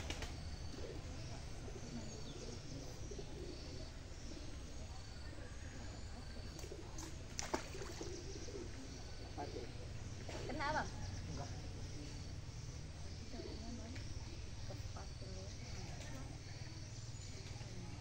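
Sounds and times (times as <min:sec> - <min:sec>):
birds calling: 0:00.0 - 0:18.0.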